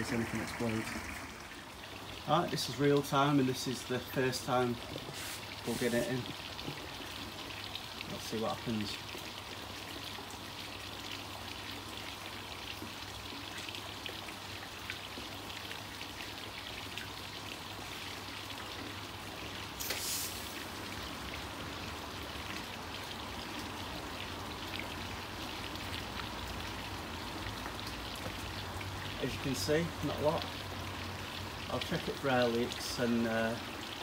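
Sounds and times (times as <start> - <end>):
fountain water splashing: 0.0 - 34.0
short hiss: 5.1 - 6.2, 19.8 - 20.7.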